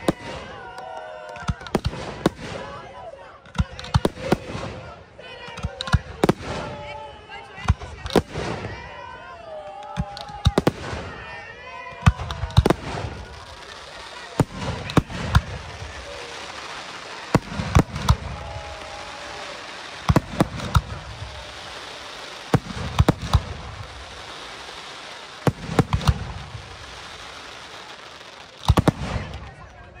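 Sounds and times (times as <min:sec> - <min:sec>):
fireworks bangs: 0:00.0 - 0:09.1, 0:09.9 - 0:30.0.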